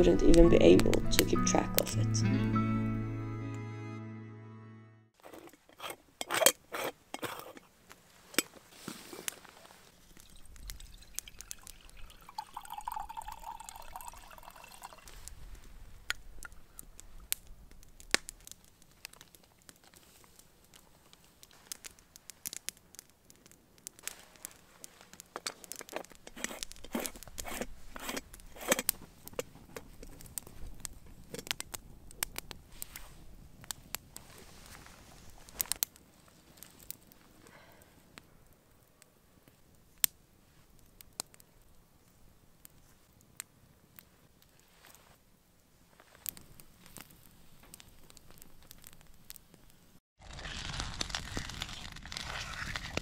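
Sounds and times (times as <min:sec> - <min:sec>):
campfire crackling: 0:00.0 - 0:01.9, 0:05.2 - 0:53.0
metal pot clinking: 0:05.2 - 0:07.7
water pouring: 0:09.9 - 0:15.4.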